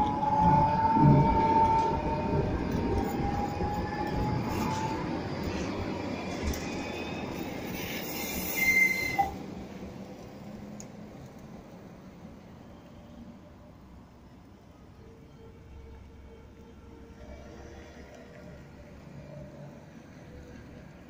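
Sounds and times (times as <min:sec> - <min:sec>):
electric tram running on rails: 0:00.0 - 0:21.0
high wheel squeal: 0:06.7 - 0:09.4.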